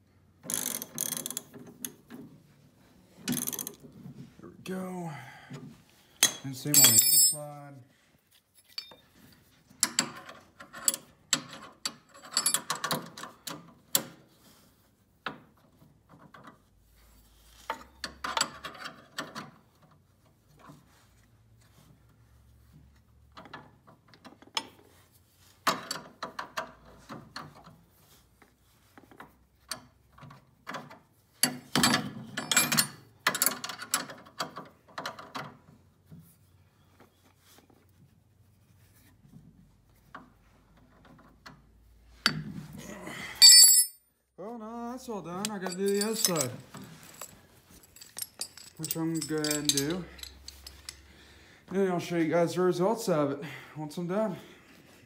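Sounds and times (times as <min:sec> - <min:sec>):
wrench clicking and clinking: 0:03.3 - 0:03.8, 0:06.2 - 0:07.4, 0:43.4 - 0:44.0, 0:45.4 - 0:51.0.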